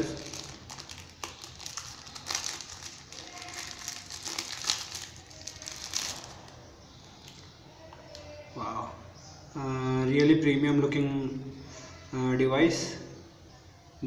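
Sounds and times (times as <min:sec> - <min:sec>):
plastic wrapping crinkling: 0:00.0 - 0:07.5.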